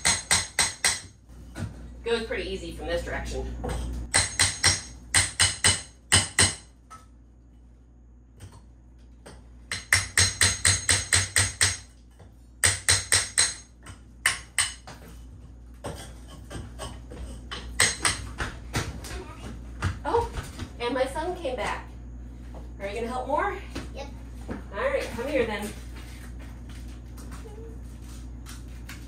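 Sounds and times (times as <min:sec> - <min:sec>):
hammer striking chisel: 0:00.0 - 0:01.1, 0:04.1 - 0:06.7, 0:09.3 - 0:11.9, 0:12.6 - 0:14.9, 0:17.5 - 0:18.5.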